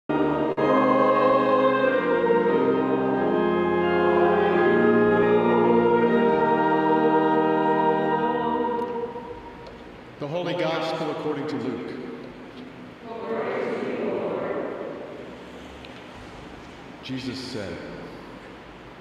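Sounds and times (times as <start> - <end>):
congregation singing a hymn: 0.1 - 10.0, 13.0 - 15.6
church organ: 0.1 - 12.2.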